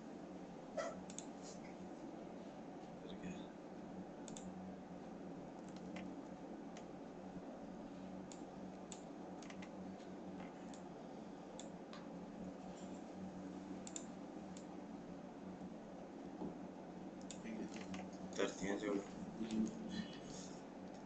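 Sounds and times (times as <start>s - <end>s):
steady low hum: 0.0s - 21.0s
computer mouse and keyboard clicks: 4.2s - 4.5s, 5.6s - 6.1s, 8.2s - 9.8s, 13.8s - 14.7s.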